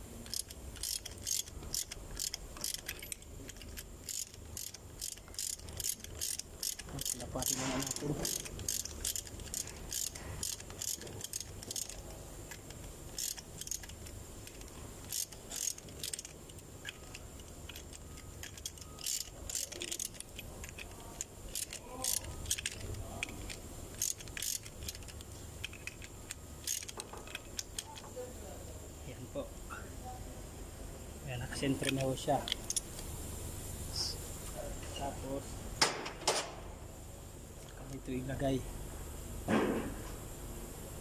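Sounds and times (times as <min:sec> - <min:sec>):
ratchet wrench clicking: 0:00.2 - 0:28.1, 0:31.6 - 0:32.9.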